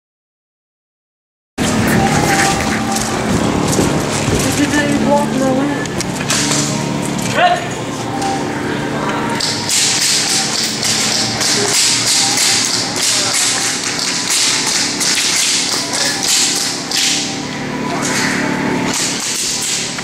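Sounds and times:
steady low hum: 0:01.6 - 0:20.0.

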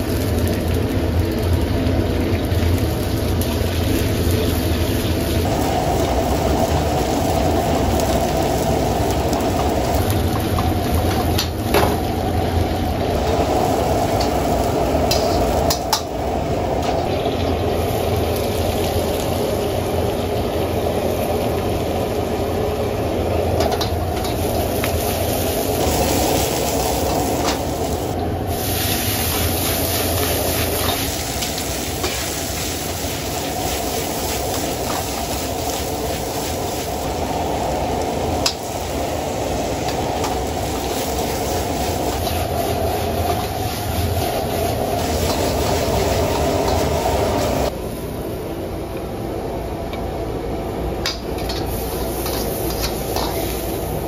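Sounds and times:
stir-fry sizzling: 0:00.0 - 0:48.6, 0:50.8 - 0:54.0
gas burner rushing: 0:02.3 - 0:48.5, 0:50.6 - 0:54.0.

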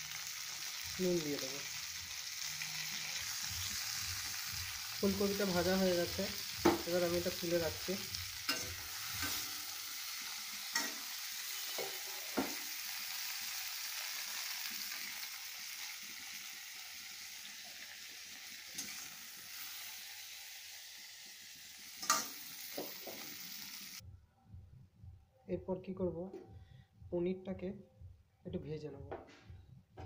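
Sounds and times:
oil sizzling in a pan: 0:00.0 - 0:24.0
metal spatula clinks and scrapes: 0:08.5 - 0:09.4.

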